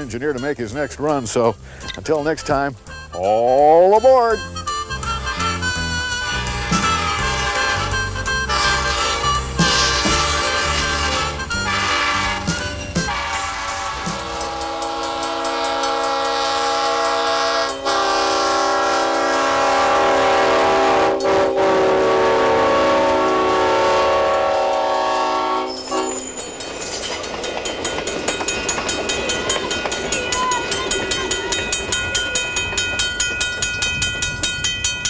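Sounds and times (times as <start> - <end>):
locomotive air horn blasts: 4.4 - 26.3
train clattering past: 5.1 - 35.0.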